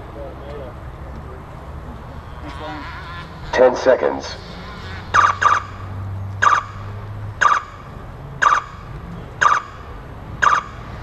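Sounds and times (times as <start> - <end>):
electronic countdown beeps: 10.4 - 10.7.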